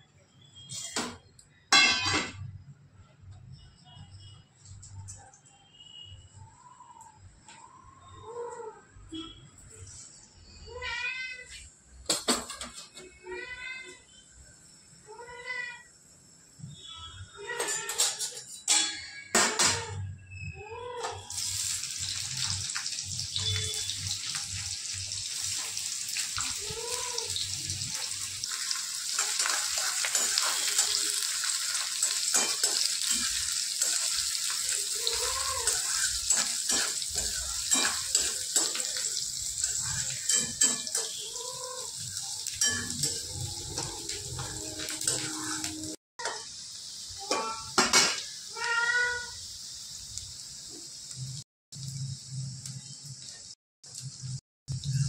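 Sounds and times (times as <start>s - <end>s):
metal spoon scraping a pan: 17.4s - 19.8s, 26.8s - 46.4s
onions sizzling in hot oil: 21.2s - 55.0s.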